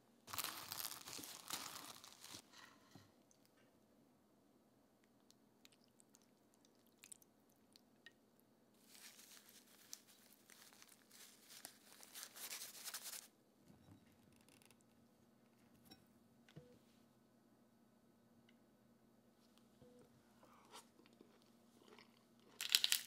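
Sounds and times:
dried flakes crinkling: 0:00.3 - 0:02.7, 0:08.8 - 0:13.3, 0:21.9 - 0:23.0.

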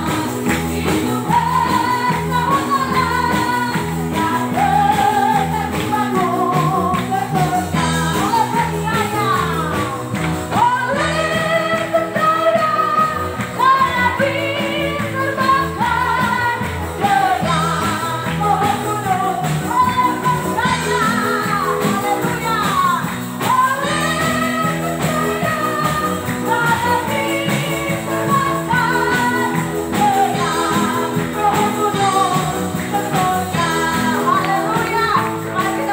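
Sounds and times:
amplified instrumental accompaniment: 0:00.0 - 0:35.9
women singing into microphones: 0:00.0 - 0:35.9.

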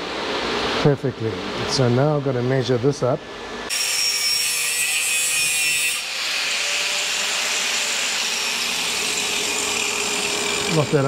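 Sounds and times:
angle grinder cutting metal: 0:03.7 - 0:11.0
faint motor whine: 0:06.0 - 0:11.0.

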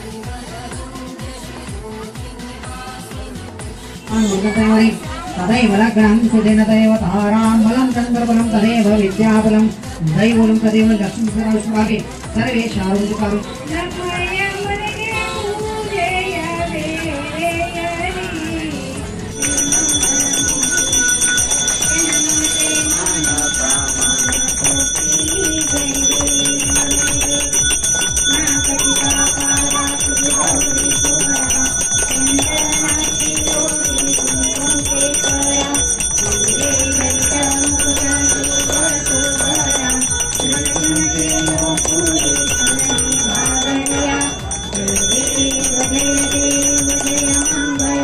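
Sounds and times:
slow sung melody: 0:15.2 - 0:48.0
bell rung rapidly: 0:19.3 - 0:48.0.

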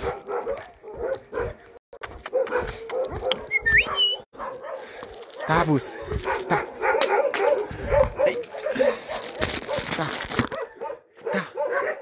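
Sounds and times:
footsteps on concrete: 0:00.0 - 0:09.9
dogs whining: 0:03.0 - 0:04.3.

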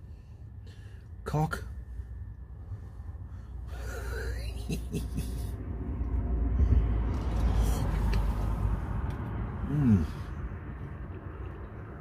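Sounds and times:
low rumble of road traffic: 0:00.0 - 0:12.0
man humming: 0:09.6 - 0:10.3.

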